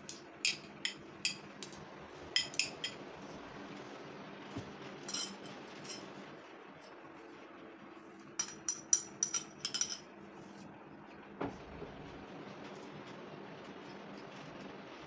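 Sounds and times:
metal spoon clinking on plate: 0:02.4 - 0:03.0, 0:05.1 - 0:06.1, 0:08.4 - 0:10.1.

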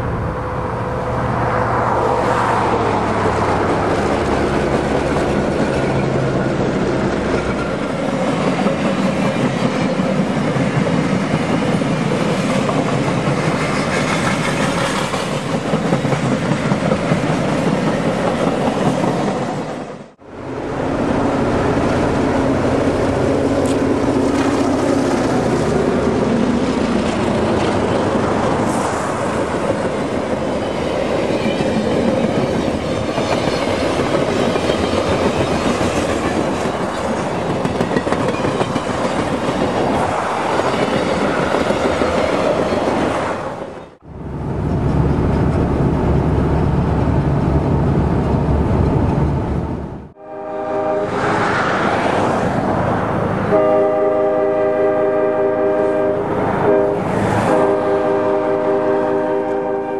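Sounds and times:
train wheels rattling on rail: 0:01.8 - 0:20.1, 0:20.8 - 0:45.9
distant train horn blasts: 0:50.2 - 0:51.4, 0:53.4 - 0:59.9.

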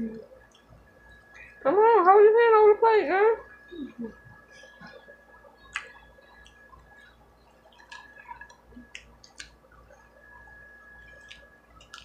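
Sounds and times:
lip smacks while eating: 0:05.6 - 0:09.6, 0:11.1 - 0:12.0
chewing and finger-licking clicks: 0:05.6 - 0:10.0, 0:11.1 - 0:12.0.

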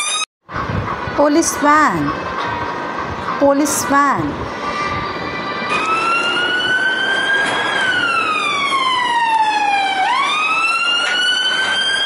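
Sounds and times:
police siren wailing: 0:04.4 - 0:12.0.

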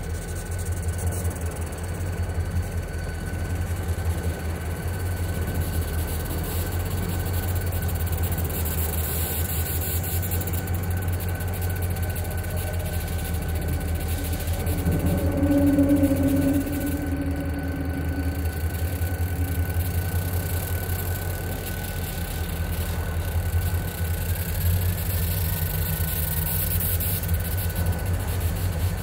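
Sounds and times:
locomotive engine rumble: 0:00.0 - 0:29.0
faint high tone: 0:13.0 - 0:22.0.

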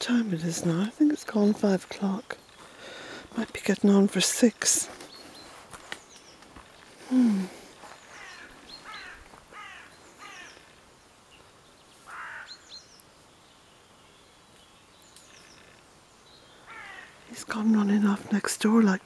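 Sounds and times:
faint high bird chirps: 0:07.9 - 0:17.2
harsh caw: 0:08.1 - 0:10.6, 0:12.1 - 0:12.6, 0:16.6 - 0:17.2.

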